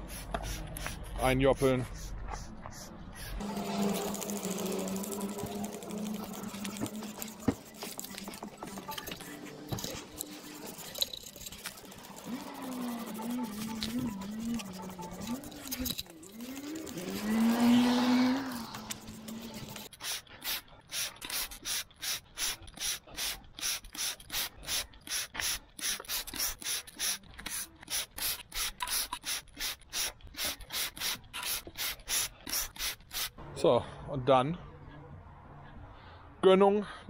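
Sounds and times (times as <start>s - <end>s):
spray bottle squirting: 0.0s - 1.2s, 2.0s - 33.4s
person humming: 12.2s - 18.7s.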